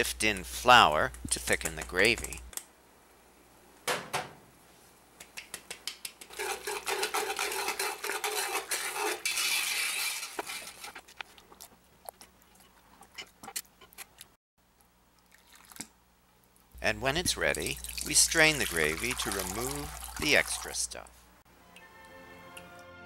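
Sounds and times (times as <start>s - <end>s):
whisk clicking against metal pot: 0.2s - 2.4s, 5.3s - 10.9s.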